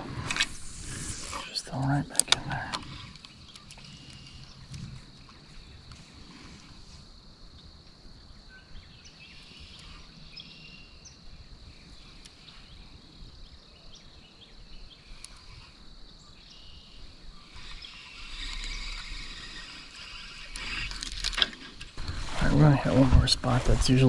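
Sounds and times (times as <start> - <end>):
distant chorus of calling animals: 0.0 - 24.0
faint clicks: 2.1 - 6.1, 15.0 - 15.8, 17.5 - 22.2.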